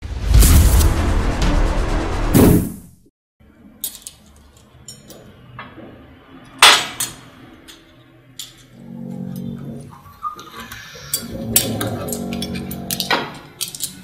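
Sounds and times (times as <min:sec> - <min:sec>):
dishes and glassware clinking: 0:10.4 - 0:14.0.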